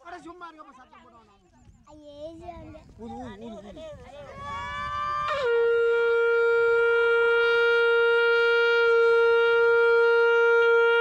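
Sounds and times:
conch shell blast: 5.3 - 11.0.

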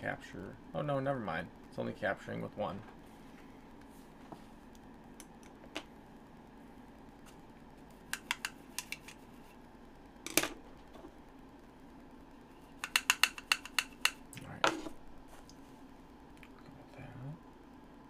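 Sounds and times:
hard objects clicking: 8.1 - 9.2, 12.8 - 14.8.

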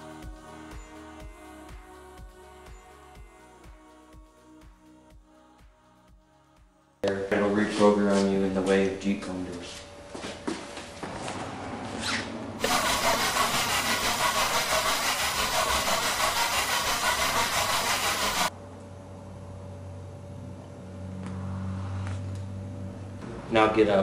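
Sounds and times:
loud rough machine noise: 12.6 - 18.5.

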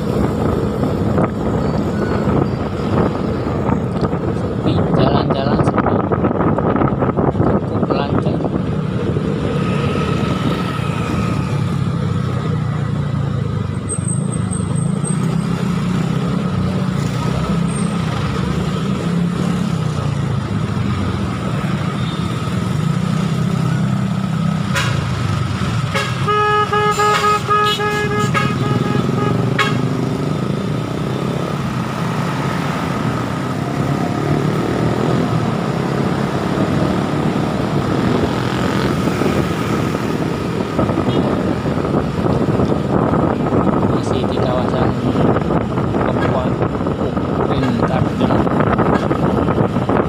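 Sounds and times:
motorcycle engine and traffic: 0.0 - 50.0
vehicle horn short beeps: 26.0 - 29.8.

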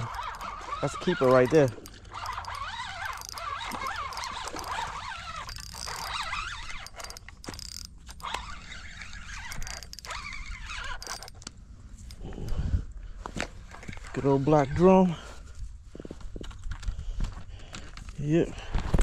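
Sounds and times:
faint high wavering squeaks: 0.0 - 12.6
fishing reel being worked: 0.0 - 12.7.

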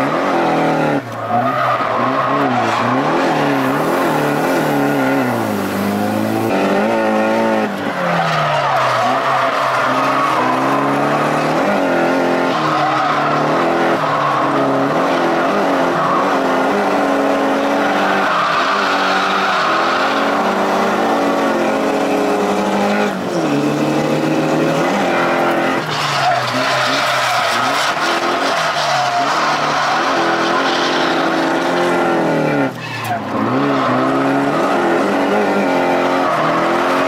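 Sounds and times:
car engine revving hard: 0.0 - 37.0
tyres squealing: 24.7 - 31.8.

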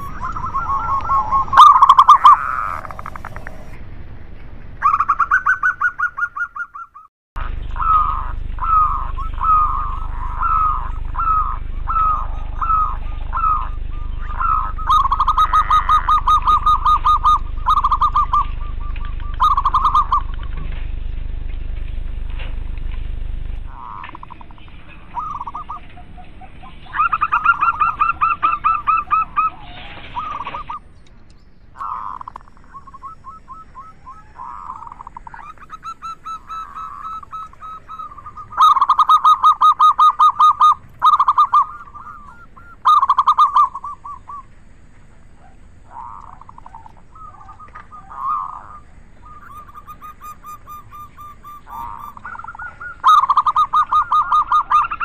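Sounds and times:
doves cooing: 0.0 - 3.8, 4.6 - 31.1, 31.8 - 55.0.

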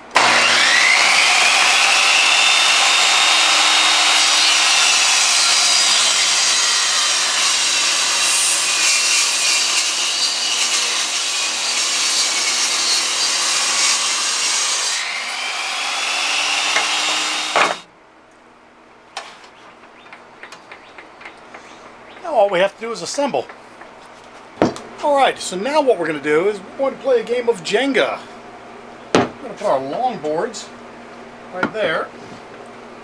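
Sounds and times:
table saw cutting wood: 0.0 - 17.9.

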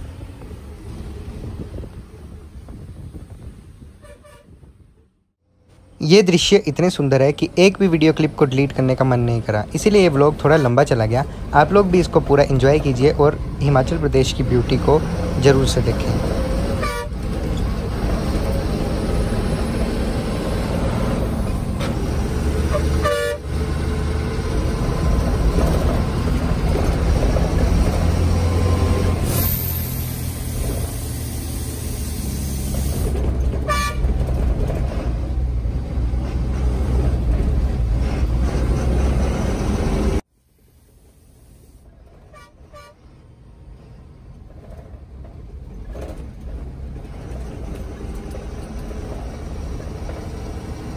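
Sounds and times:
bus engine and road rumble: 0.0 - 50.9
vehicle horn honking: 4.0 - 4.6, 16.8 - 17.2, 22.7 - 23.5, 33.7 - 34.1, 42.3 - 43.0.

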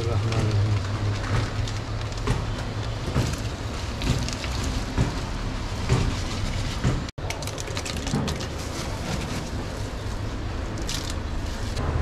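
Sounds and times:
spices shaken from plastic bag: 7.3 - 9.0.

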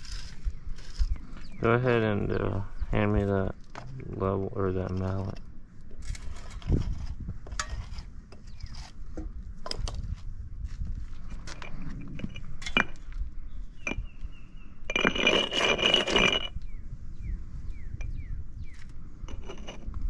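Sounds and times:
loud paver scrape: 0.0 - 1.8, 6.0 - 9.0, 14.8 - 16.6, 19.2 - 20.0
concrete pavers clinking: 0.0 - 8.9, 11.2 - 16.8, 17.9 - 20.0.

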